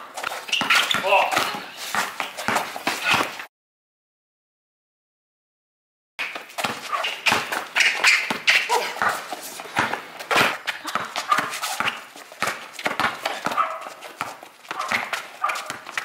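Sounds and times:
basketball bouncing on asphalt: 0:00.0 - 0:03.4, 0:06.2 - 0:16.0
sneaker footsteps on pavement: 0:00.0 - 0:03.4, 0:06.2 - 0:16.0
short voice sounds: 0:08.7 - 0:09.0.

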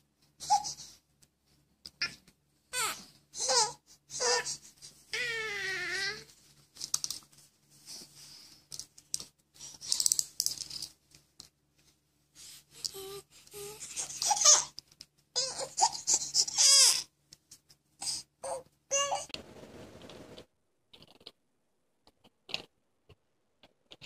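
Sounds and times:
babies babbling and squealing: 0:02.8 - 0:06.3, 0:12.8 - 0:14.8, 0:15.4 - 0:17.1, 0:18.4 - 0:19.3
baby wailing: 0:02.8 - 0:06.3, 0:15.4 - 0:17.1, 0:18.4 - 0:19.3.

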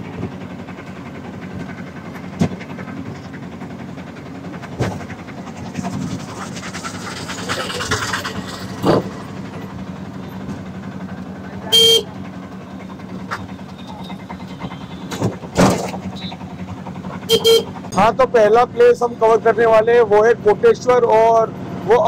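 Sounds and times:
vehicle engine and road noise: 0:00.0 - 0:22.0
sharp knocks: 0:15.1 - 0:16.0.

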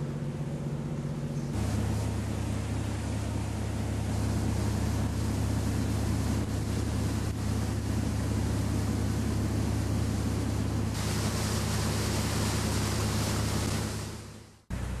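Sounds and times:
boat engine droning: 0:00.0 - 0:15.0
water noise: 0:00.0 - 0:15.0.

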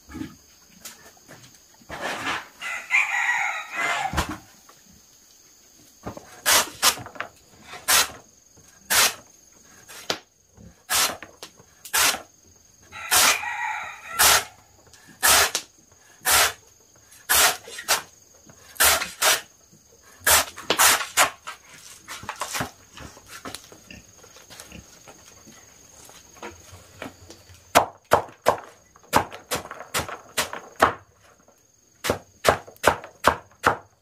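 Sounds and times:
rooster crowing: 0:02.6 - 0:04.4, 0:12.9 - 0:14.8
machete chopping onto wood: 0:32.0 - 0:33.9.

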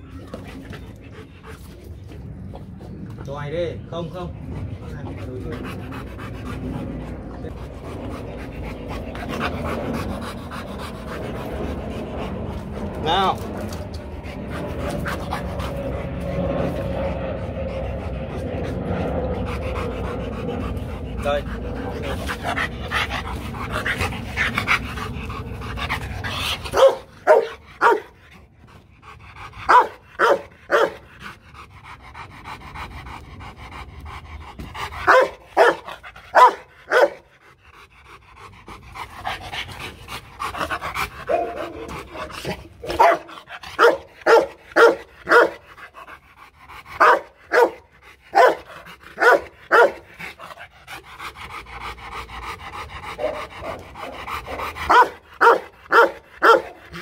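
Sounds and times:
dog panting: 0:00.0 - 0:57.0
dog barking deeply: 0:26.6 - 0:28.2, 0:29.7 - 0:31.0, 0:35.0 - 0:37.3, 0:41.2 - 0:45.6, 0:47.0 - 0:50.0, 0:53.2 - 0:57.0.

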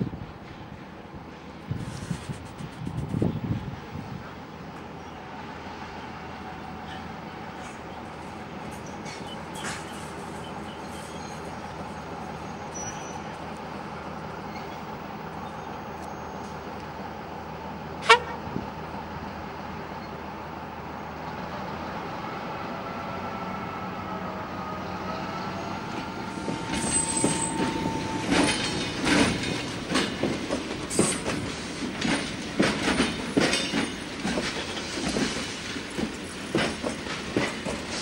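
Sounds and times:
faint wheel squeal: 0:12.4 - 0:13.4, 0:26.2 - 0:28.6
wagon wheels clattering on rails: 0:26.4 - 0:38.0.

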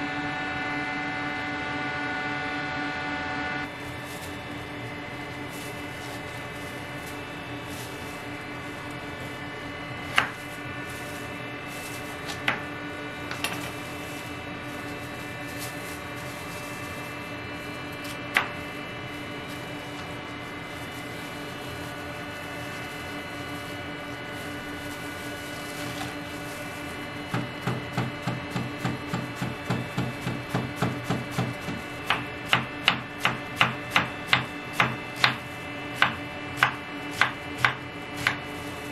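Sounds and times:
steady machine hum: 0:00.0 - 0:38.9
knife chopping cabbage on board: 0:10.1 - 0:10.5, 0:12.2 - 0:12.7, 0:18.0 - 0:18.6, 0:27.3 - 0:38.5.

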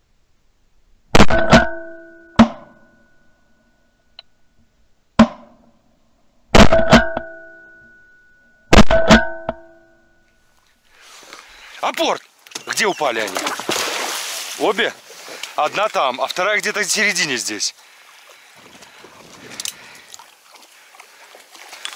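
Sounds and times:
shotgun shots: 0:06.6 - 0:07.0.

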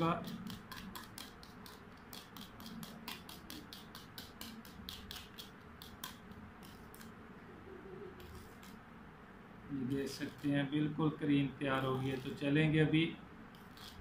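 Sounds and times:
whisk beating batter in metal bowl: 0:00.0 - 0:07.1.

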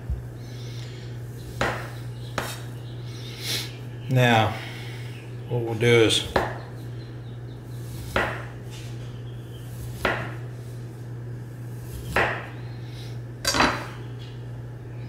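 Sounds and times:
knife slicing fruit on board: 0:07.8 - 0:08.6, 0:09.8 - 0:10.4, 0:11.8 - 0:12.5.

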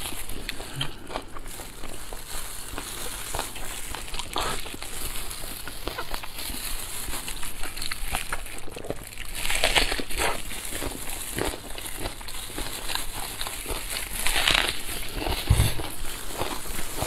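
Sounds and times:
loud bite: 0:15.1 - 0:16.0.

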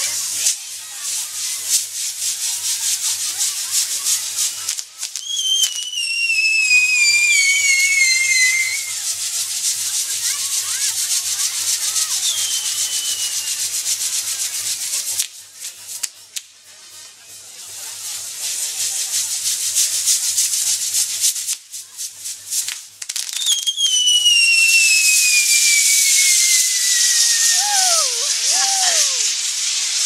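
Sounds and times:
fireworks fizzing and crackling: 0:00.0 - 0:30.0
firework falling whistle: 0:05.1 - 0:09.0, 0:12.1 - 0:13.7, 0:23.2 - 0:30.0.

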